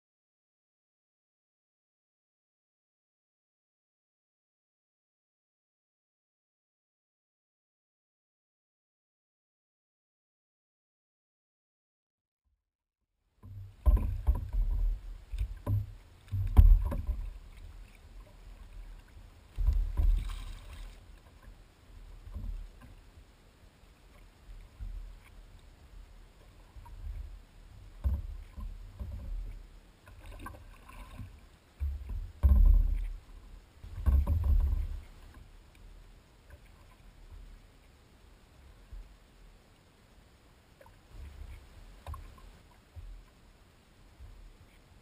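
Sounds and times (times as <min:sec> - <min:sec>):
water sloshing against kayak hull: 0:13.4 - 0:39.2, 0:40.8 - 0:45.0.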